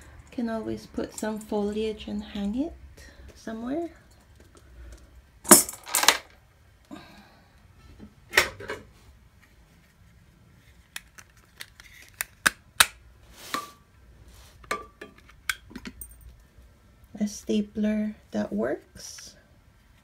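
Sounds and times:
household items clinking and knocking: 4.2 - 6.3.

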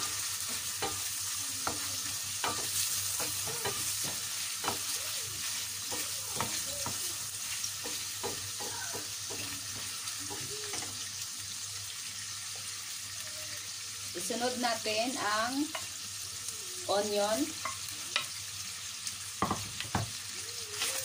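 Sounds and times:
wooden spoon scraping a pan: 0.0 - 10.9
meat sizzling in a pan: 0.0 - 21.0.

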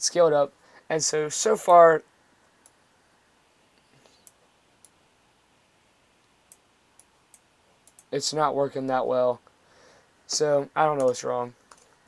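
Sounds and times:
faint computer mouse clicks: 3.8 - 5.0, 6.2 - 8.1, 11.0 - 12.0.

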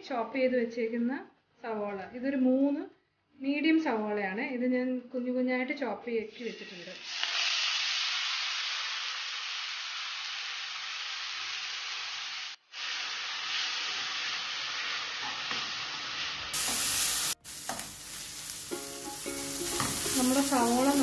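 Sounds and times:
onions sizzling in hot oil: 6.3 - 21.0.

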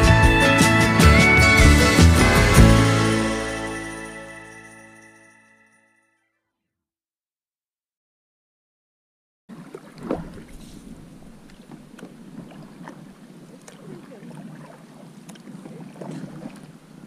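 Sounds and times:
paddles stroking water: 9.5 - 17.0.

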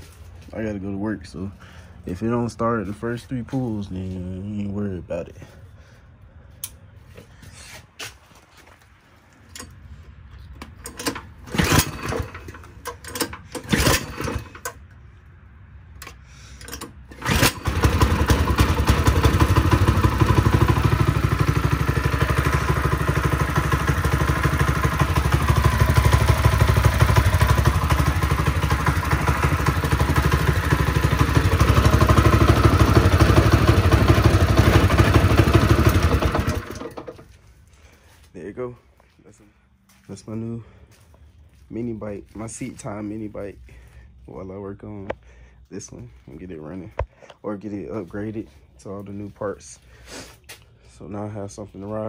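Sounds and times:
recoil starter pulls: 10.5 - 14.9, 16.0 - 37.4
small engine running: 11.0 - 12.6, 13.2 - 14.7, 17.1 - 37.2.

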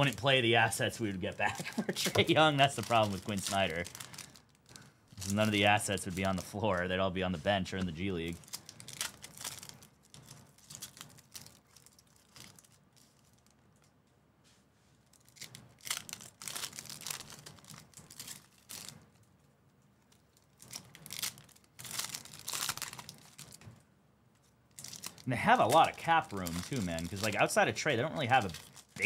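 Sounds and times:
foil wrapper crinkling and tearing: 0.0 - 13.6, 15.1 - 19.3, 20.1 - 23.6, 24.7 - 29.0.

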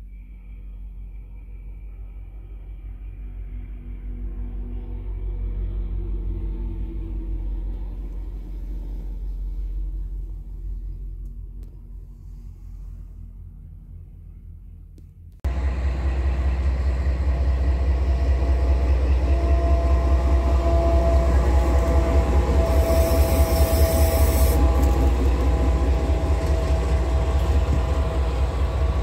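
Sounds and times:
freight train passing: 15.5 - 29.0
high hiss: 22.7 - 24.8.

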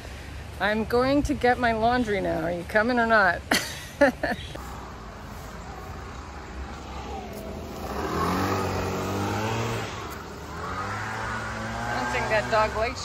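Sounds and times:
vehicle engine accelerating: 4.6 - 13.0.

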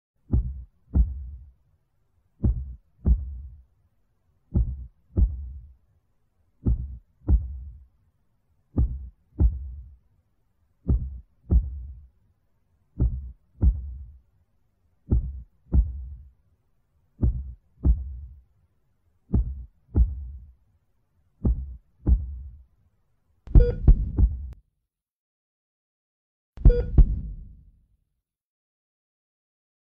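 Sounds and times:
slow heartbeat thumps: 0.3 - 1.5, 2.4 - 3.6, 4.5 - 5.8, 6.6 - 7.8, 8.8 - 10.0, 10.9 - 12.1, 13.0 - 14.2, 15.1 - 16.3, 17.2 - 18.4, 19.3 - 20.6, 21.4 - 22.6, 23.5 - 24.6, 26.6 - 27.7.

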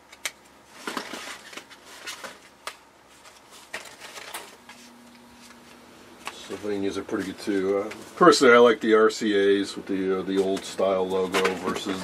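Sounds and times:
paperboard boxes rustling: 0.7 - 5.6, 10.3 - 12.0.

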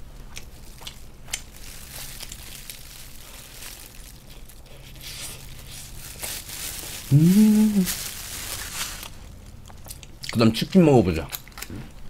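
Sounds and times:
plastic crinkling and rustling: 0.6 - 9.3.

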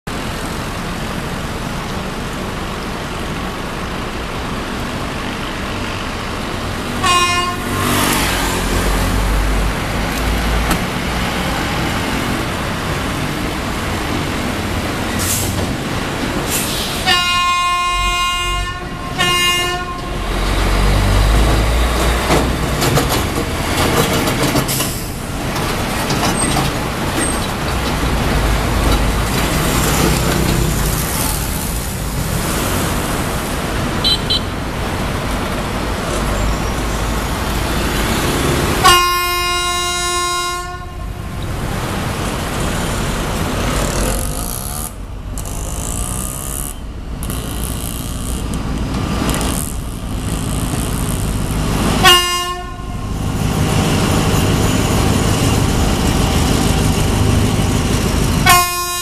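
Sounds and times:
road traffic: 0.0 - 59.0
trucks and motorcycles passing: 0.1 - 59.0
locomotive horn blasts: 7.0 - 8.2, 17.0 - 20.3, 34.0 - 34.5, 38.8 - 41.2, 52.0 - 53.2, 58.4 - 59.0.

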